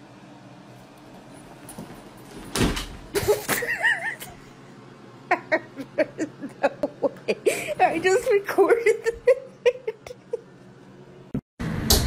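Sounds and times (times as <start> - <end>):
bag thumping on wooden floor: 1.6 - 3.1
person laughing: 3.2 - 4.6, 5.2 - 8.0, 8.8 - 10.6.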